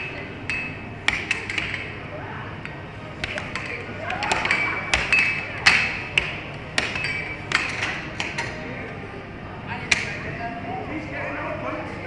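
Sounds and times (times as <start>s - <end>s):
air hockey puck clacking: 0.0s - 2.0s, 2.6s - 8.6s, 9.9s - 10.2s.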